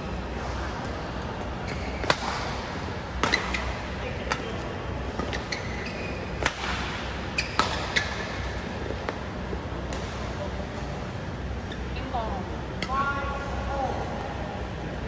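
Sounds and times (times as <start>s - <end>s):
steady low hum: 0.0s - 15.0s
shoes squeaking on court: 1.4s - 2.4s, 3.2s - 8.9s, 11.6s - 12.0s
rackets hitting shuttlecock: 1.9s - 5.5s, 6.3s - 9.2s.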